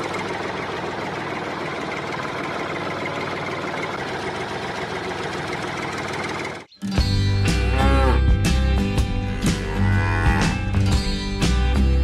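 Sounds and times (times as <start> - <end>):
small motor rattling: 0.0 - 6.7.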